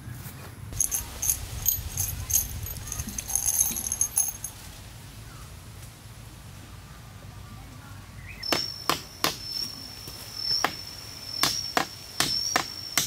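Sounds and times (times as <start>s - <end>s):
low background rumble: 0.6s - 8.4s.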